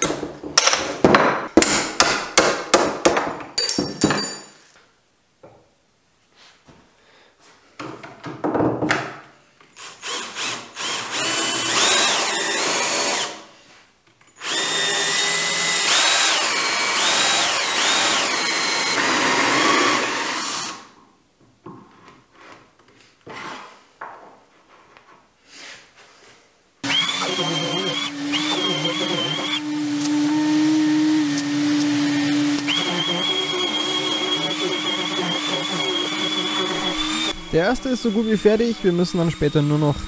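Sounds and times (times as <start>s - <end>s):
cordless drill boring wood: 9.8s - 13.4s, 14.4s - 20.9s, 26.8s - 40.0s.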